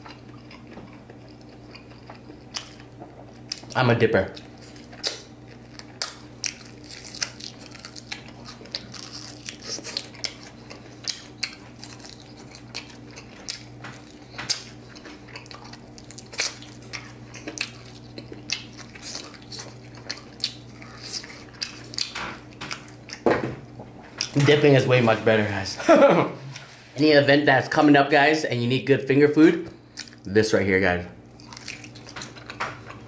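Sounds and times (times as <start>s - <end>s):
chewing and mouth smacks: 0.0s - 3.8s, 4.4s - 23.2s, 29.9s - 30.3s, 31.3s - 33.0s
steady low hum: 0.0s - 33.0s.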